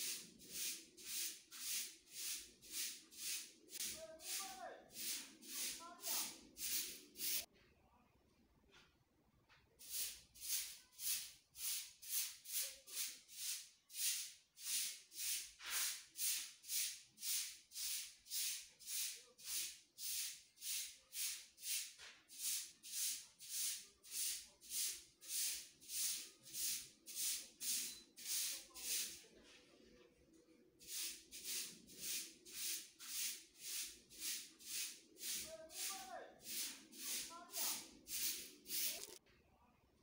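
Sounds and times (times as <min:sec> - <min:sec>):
rhythmic shaker hiss: 0:00.0 - 0:07.5, 0:30.9 - 0:39.2.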